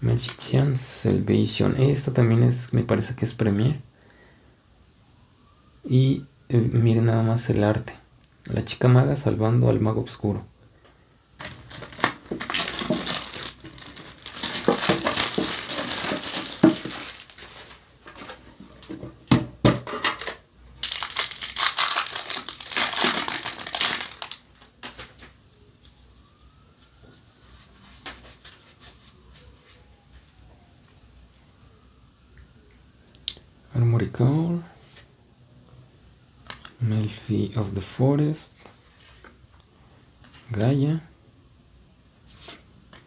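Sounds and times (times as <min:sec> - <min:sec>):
foil pack crinkling and tearing: 0:11.4 - 0:18.4, 0:20.2 - 0:25.3.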